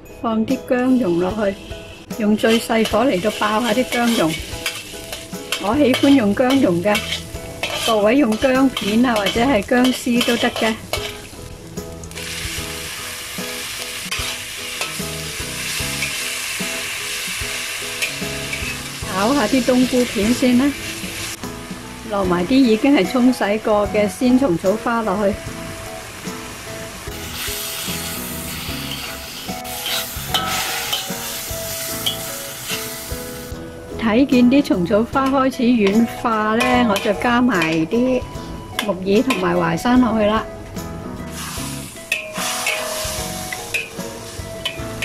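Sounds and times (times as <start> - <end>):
mushrooms sizzling in hot oil: 1.0 - 33.5, 41.3 - 45.0
metal spatula stirring in wok: 1.6 - 11.4, 13.6 - 20.2, 27.1 - 32.9, 41.4 - 45.0.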